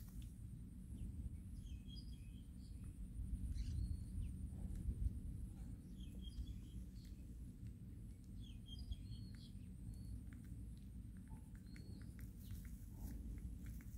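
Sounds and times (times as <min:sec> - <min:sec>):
faint bird chirps: 0:00.9 - 0:04.7, 0:05.6 - 0:07.3, 0:08.3 - 0:10.5, 0:11.2 - 0:13.2
wind noise on microphone: 0:00.9 - 0:07.2.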